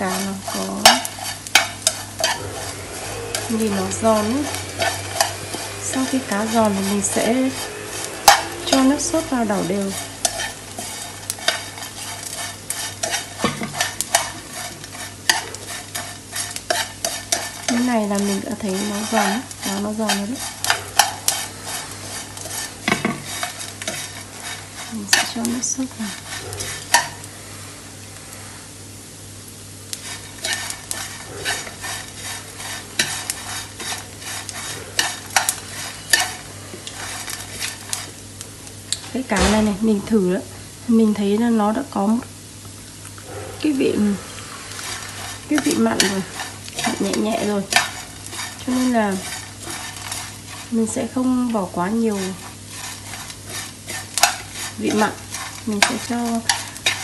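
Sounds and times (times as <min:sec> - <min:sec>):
utensil scraping fish in pan: 0:00.0 - 0:27.7, 0:29.9 - 0:39.7, 0:43.6 - 0:57.0
chopsticks clicking on pan: 0:52.2 - 0:57.0.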